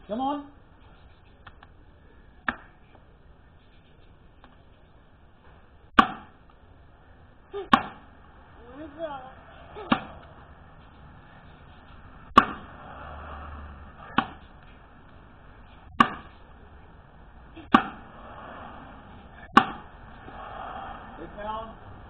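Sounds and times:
axe chopping into wooden log: 6.0 - 6.3, 7.7 - 8.0, 9.9 - 10.2, 12.4 - 12.7, 14.1 - 14.4, 16.0 - 16.3, 17.7 - 18.0, 19.5 - 19.8.

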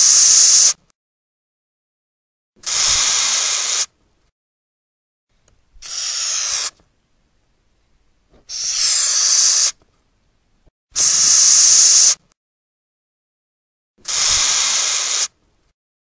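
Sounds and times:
cockroach hissing: 0.0 - 0.8, 2.6 - 3.9, 5.8 - 6.7, 8.5 - 9.8, 11.0 - 12.2, 14.1 - 15.3.

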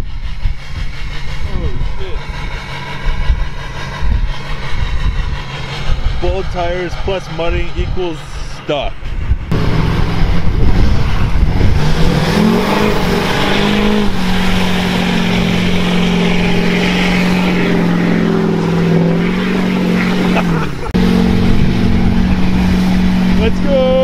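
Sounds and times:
diesel truck revving: 0.0 - 24.0
tires spinning in mud: 9.4 - 24.0.

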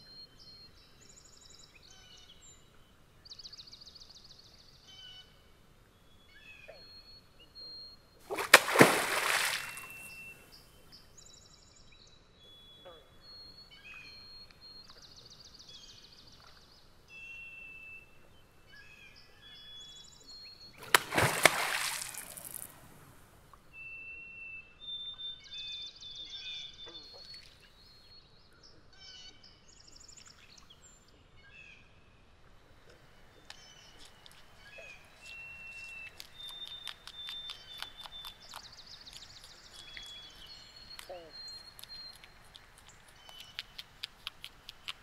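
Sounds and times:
birds singing faintly: 0.0 - 45.0
beaver tail slapping water: 8.2 - 10.6, 20.8 - 23.6, 32.8 - 45.0
water splashing: 8.2 - 10.6, 20.8 - 23.5, 32.7 - 45.0.

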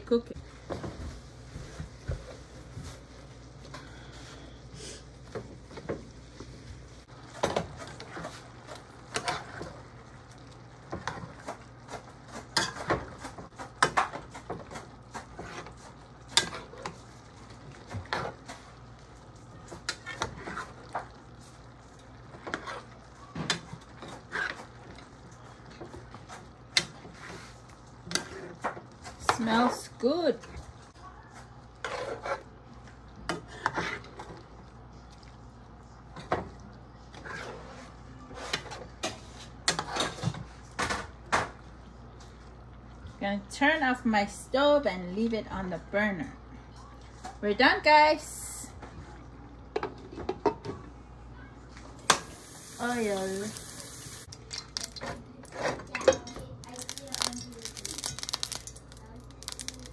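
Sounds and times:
utensil scraping a frying pan: 7.2 - 9.9, 11.0 - 18.8, 19.7 - 21.4, 22.2 - 25.1, 25.8 - 30.2, 31.8 - 32.6, 33.3 - 34.4, 37.1 - 40.6.

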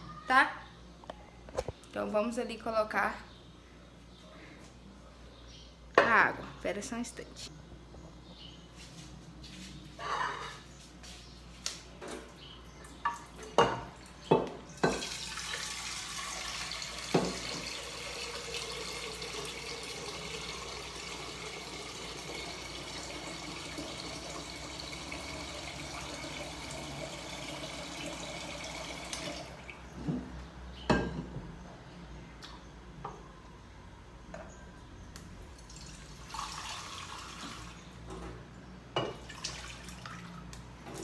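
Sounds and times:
tap filling metal pot: 17.0 - 17.8.

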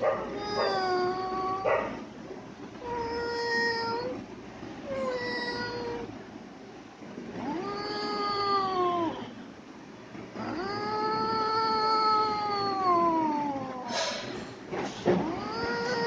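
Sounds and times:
cat meowing: 0.0 - 2.0, 2.8 - 4.2, 4.8 - 6.2, 7.4 - 9.4, 10.4 - 14.3, 15.1 - 16.0.

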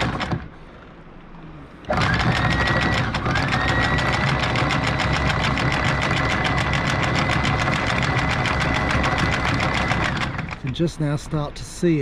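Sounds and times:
anchor windlass motor whine: 1.8 - 10.7.

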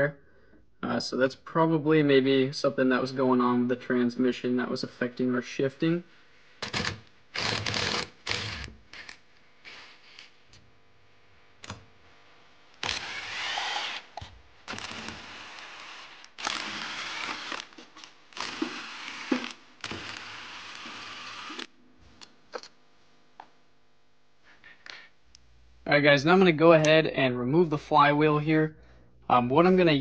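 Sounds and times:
cordless drill spinning: 6.6 - 10.3, 12.8 - 21.7.

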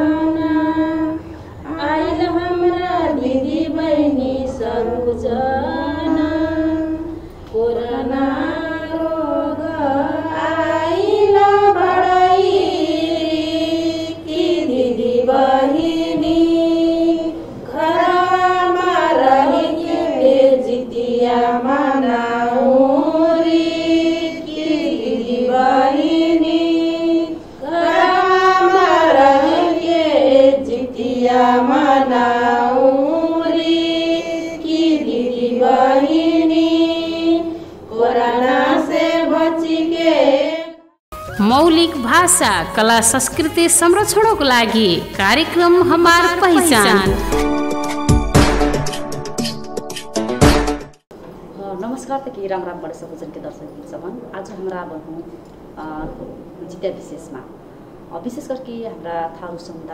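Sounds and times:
woman singing: 0.0 - 36.6, 41.4 - 47.4.

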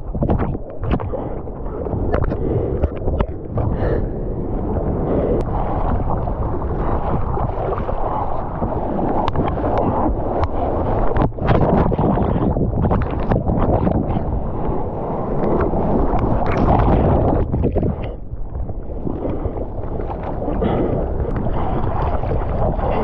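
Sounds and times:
surf washing: 0.0 - 23.0
wind buffeting microphone: 0.0 - 23.0.

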